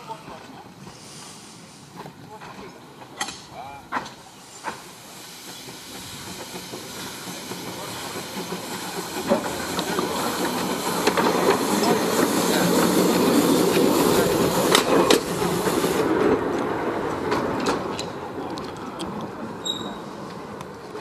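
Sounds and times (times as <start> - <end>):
steam hissing: 0.8 - 2.2, 4.1 - 16.4
locomotive wheels clanking: 1.9 - 21.0.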